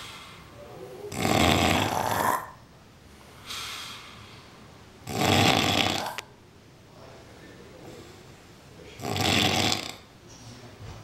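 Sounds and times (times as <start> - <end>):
man snoring: 1.1 - 2.6, 5.0 - 6.2, 9.0 - 10.1.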